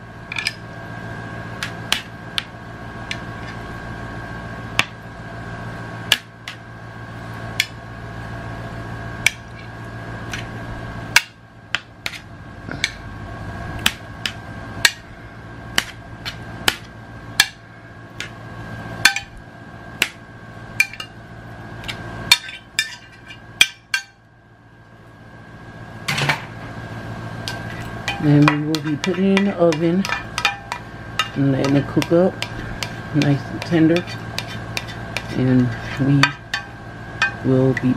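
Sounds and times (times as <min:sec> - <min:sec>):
steady hum with high whine: 0:00.0 - 0:37.9.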